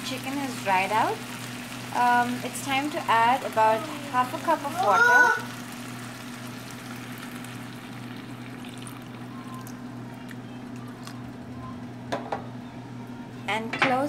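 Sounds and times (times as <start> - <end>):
water hissing in hot oil: 0.0 - 9.4.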